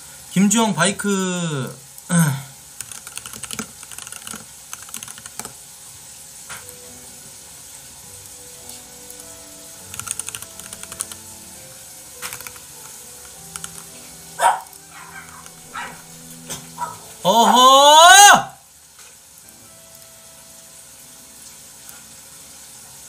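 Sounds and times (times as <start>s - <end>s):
keyboard key clicks: 2.8s - 5.6s, 9.9s - 11.2s, 12.2s - 12.7s, 13.5s - 13.9s.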